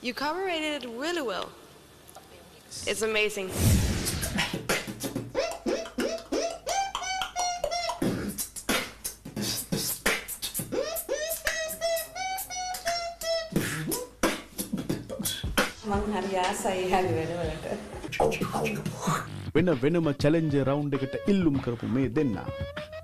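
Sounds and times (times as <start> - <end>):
hummed pitched line: 3.5 - 16.3
beatboxing clicks and hits: 4.1 - 15.8, 22.5 - 23.0.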